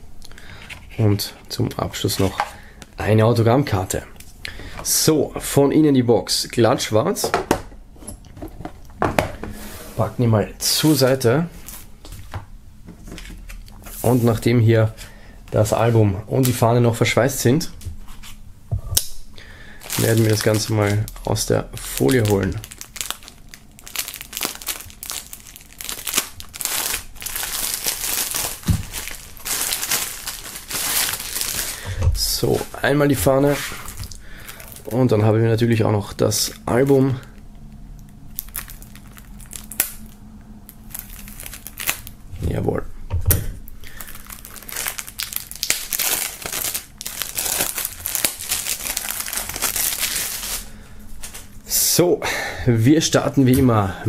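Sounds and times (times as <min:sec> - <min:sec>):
plastic wrap crinkling: 0:19.7 - 0:35.3, 0:38.0 - 0:42.2, 0:43.6 - 0:51.6.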